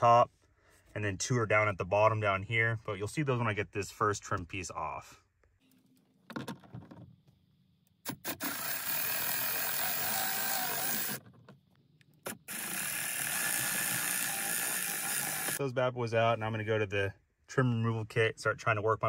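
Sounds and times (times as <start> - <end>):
cordless ratchet spinning: 8.2 - 11.2, 12.5 - 15.6.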